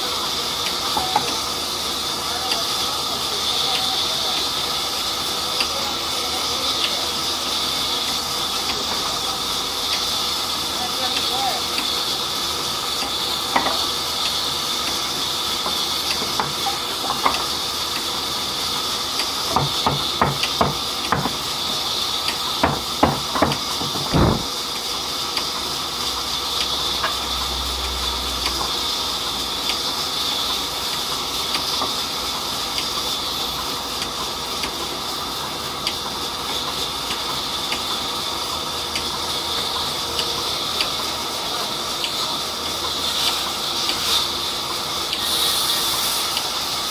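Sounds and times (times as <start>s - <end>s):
sharp knocks: 22.6s - 24.5s.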